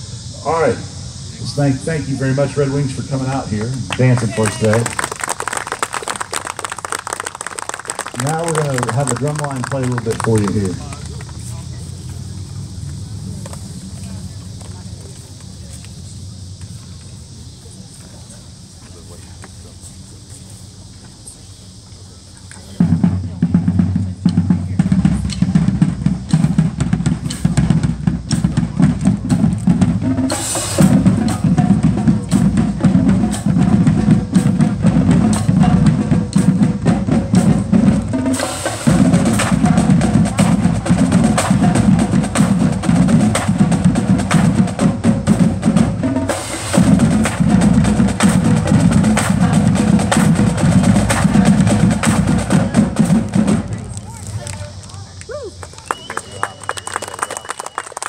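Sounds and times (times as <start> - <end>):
marching drum line playing: 1.4 - 15.1, 22.7 - 54.8.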